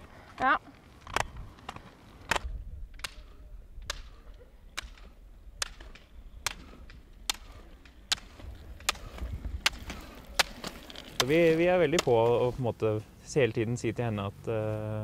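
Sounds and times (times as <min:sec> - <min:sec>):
ski pole tips clicking on asphalt: 0:00.8 - 0:12.5.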